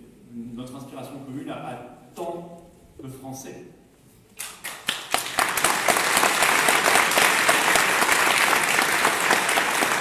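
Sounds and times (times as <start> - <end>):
audience applause: 4.4 - 10.0.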